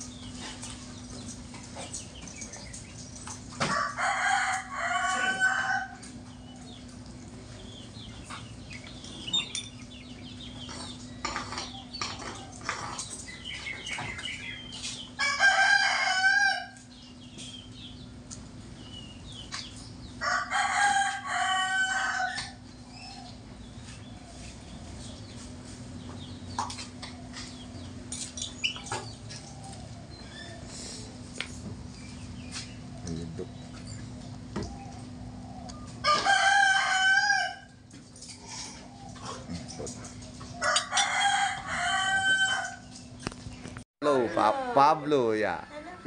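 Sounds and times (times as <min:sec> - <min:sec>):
steady low hum: 0:00.0 - 0:36.1
rooster crowing: 0:03.6 - 0:06.1, 0:15.2 - 0:16.8, 0:20.2 - 0:22.6, 0:36.0 - 0:37.8, 0:40.6 - 0:42.9.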